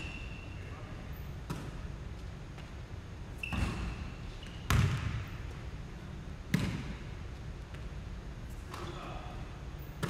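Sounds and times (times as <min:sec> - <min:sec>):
basketball bouncing on hardwood: 0:04.7 - 0:05.2.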